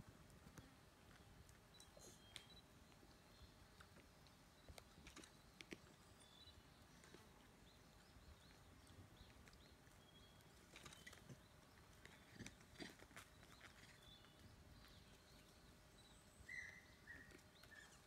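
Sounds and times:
faint high chirps: 1.7 - 3.6.

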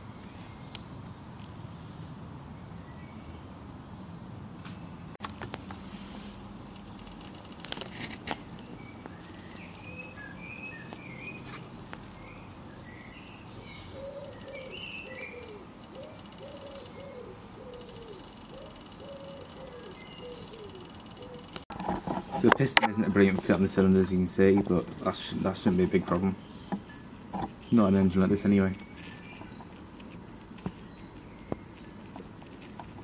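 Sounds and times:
birds chirping: 8.2 - 33.0.

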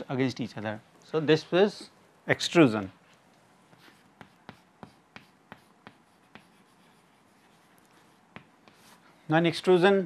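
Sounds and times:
chalk tapping on blackboard: 3.6 - 9.0.

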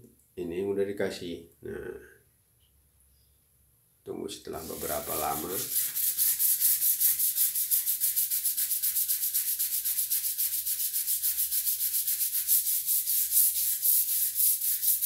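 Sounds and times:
scrub brush scrubbing wet tiles: 4.6 - 15.0.

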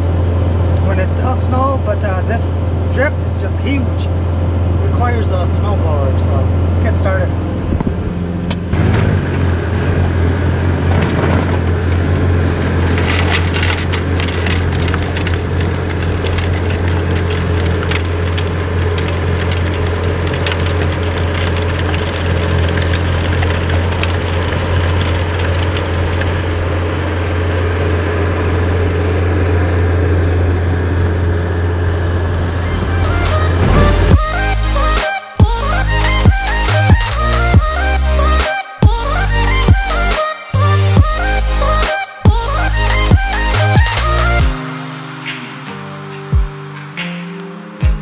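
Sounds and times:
diesel engine droning: 0.0 - 46.7
thrown snow crackling: 8.8 - 27.9, 32.5 - 45.7.

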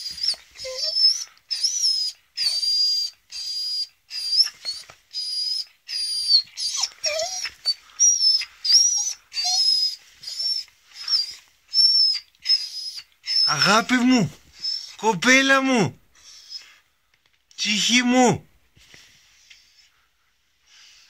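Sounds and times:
dog whining: 0.0 - 15.3.

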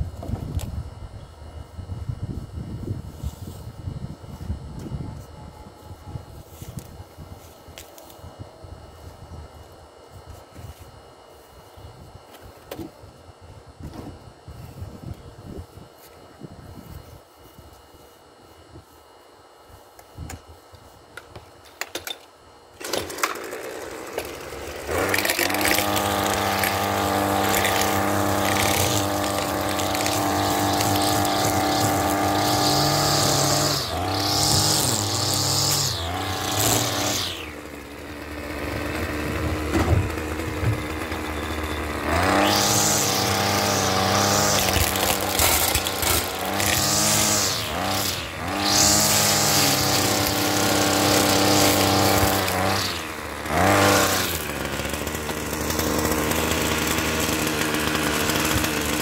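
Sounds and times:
string trimmer motor running: 20.8 - 59.0.

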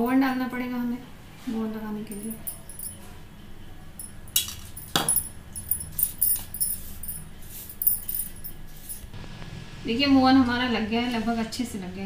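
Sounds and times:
spoon clinking on ceramic bowl: 2.1 - 3.0.

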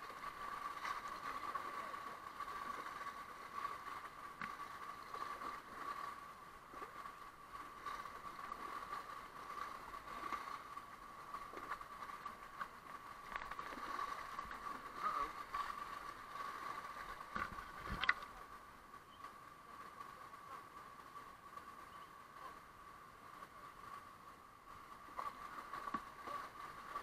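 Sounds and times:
kayak paddle strokes: 0.0 - 18.4, 24.8 - 27.0
river water rippling and gurgling: 0.0 - 27.0.

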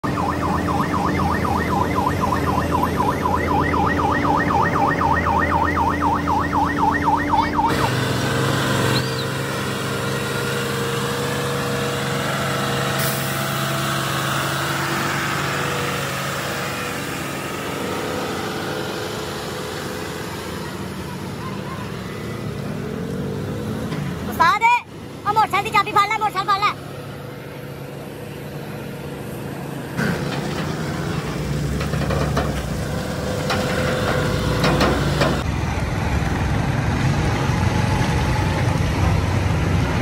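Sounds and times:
warbling electronic siren: 0.0 - 9.3
truck diesel engine running: 0.0 - 40.0.

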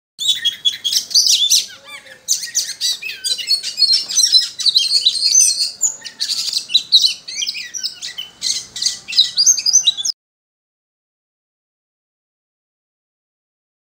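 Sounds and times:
bird singing chirps and trills: 0.2 - 10.2.

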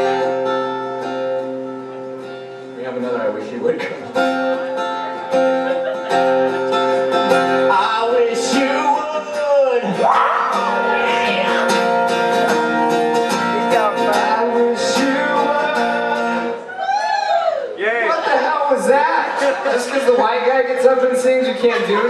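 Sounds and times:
acoustic guitar strumming: 0.0 - 16.7
person singing: 7.7 - 12.0, 13.3 - 16.7.

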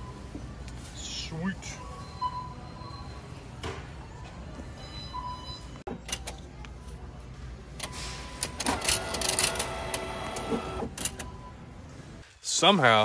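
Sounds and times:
bill acceptor motor whirring: 8.4 - 11.2.

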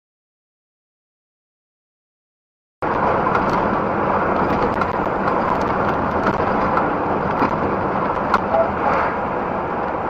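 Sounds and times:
low engine hum: 2.8 - 10.0
truck cab road noise: 2.8 - 10.0
tyres on wet road: 2.8 - 10.0.

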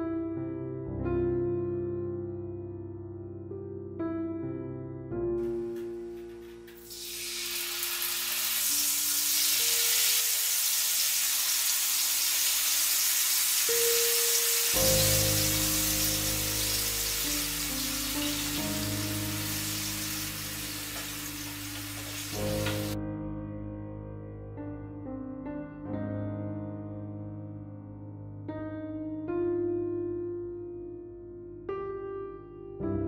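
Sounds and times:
soft piano music: 0.0 - 33.0
chicken sizzling in oil: 6.7 - 23.0.

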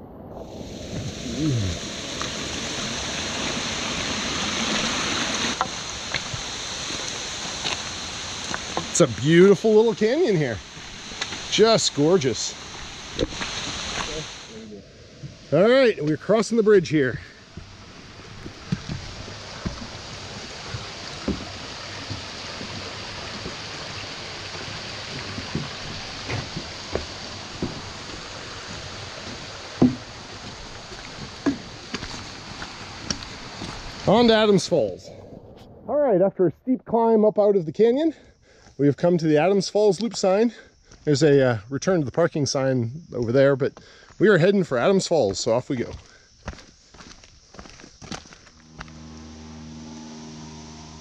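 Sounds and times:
creek water rushing over stones: 0.4 - 14.6, 15.2 - 34.9
footsteps on a footbridge: 17.6 - 23.7, 25.1 - 34.0, 45.3 - 48.9.

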